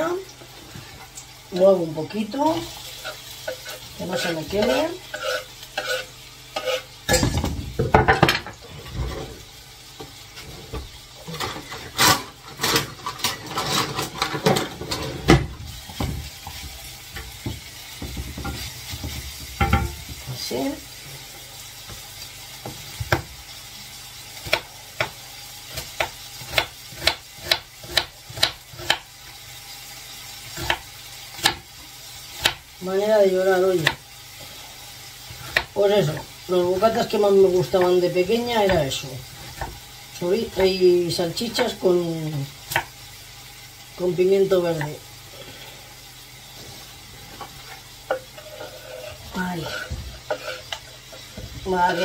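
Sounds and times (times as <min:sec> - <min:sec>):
food sizzling in a frying pan: 0:00.0 - 0:52.0
utensil knocking and scraping pan: 0:03.0 - 0:09.4, 0:10.0 - 0:20.3, 0:47.3 - 0:52.0.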